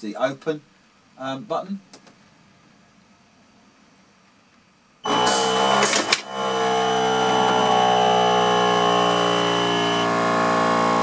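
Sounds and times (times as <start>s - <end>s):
motorised valve actuator whine: 5.0s - 11.0s
steady high tone: 5.0s - 11.0s.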